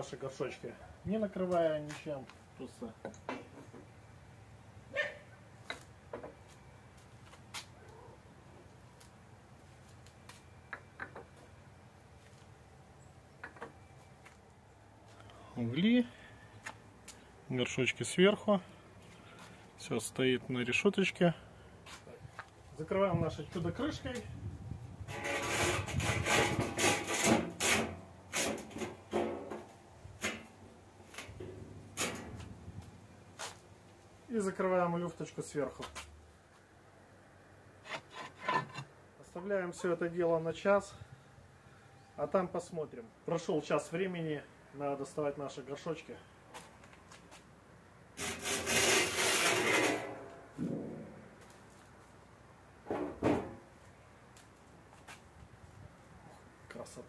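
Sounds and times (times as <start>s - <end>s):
metal oven door scraping: 25.1s - 29.3s, 48.2s - 50.3s.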